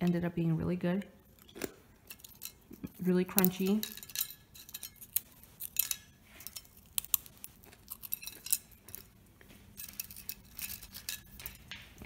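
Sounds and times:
dried fruit snapping and crackling: 5.0 - 9.2.

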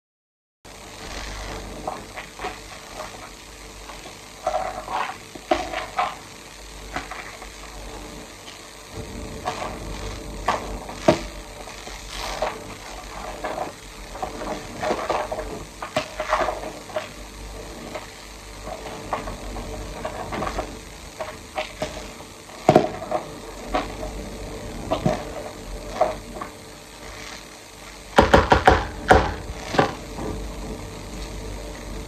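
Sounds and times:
food sizzling in frying pan: 0.7 - 32.0
sharp knock on pan: 28.2 - 29.4.

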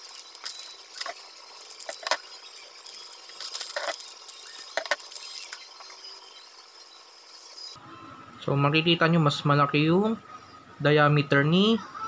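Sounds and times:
plastic bag crinkling: 0.0 - 5.7
small metal parts clinking: 0.0 - 5.8.

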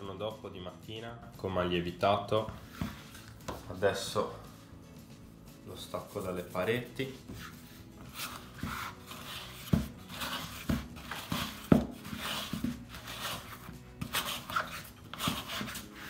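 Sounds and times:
spatula scraping plastic bowl: 7.3 - 16.0.

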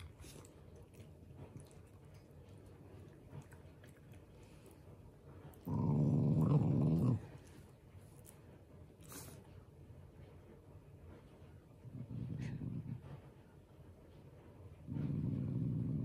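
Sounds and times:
dog growling: 5.5 - 7.6, 11.8 - 13.2, 14.8 - 16.0.

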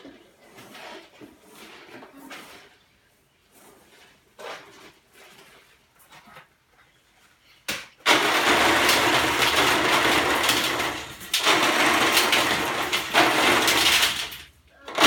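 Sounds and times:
gravel pouring down metal chute: 8.1 - 14.5.

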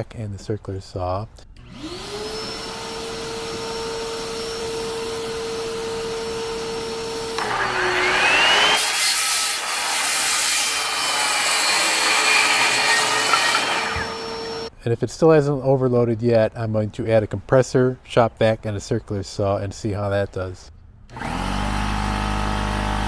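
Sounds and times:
saw cutting wooden board: 1.6 - 14.7, 21.1 - 23.0
shop vac running: 1.6 - 14.7, 21.1 - 23.0
circular saw whine: 1.7 - 14.7.

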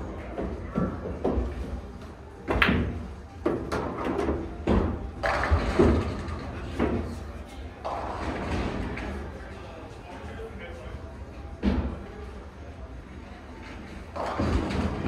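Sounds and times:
pool balls clacking: 2.4 - 7.2, 14.1 - 15.0.

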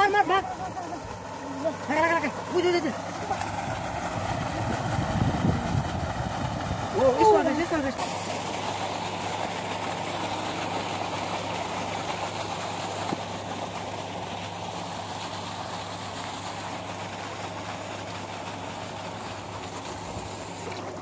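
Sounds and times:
mechanical drone with hum: 0.0 - 16.5.

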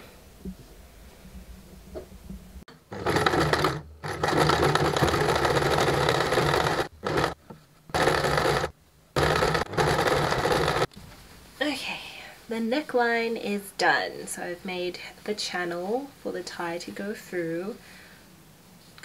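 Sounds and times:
sewing machine stitching: 2.8 - 10.9.

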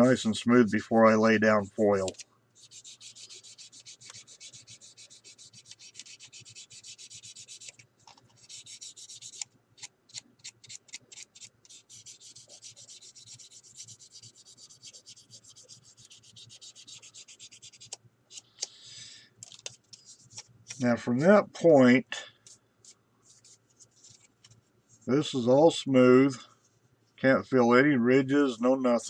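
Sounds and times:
sanding stick scratching plastic: 0.0 - 18.4.

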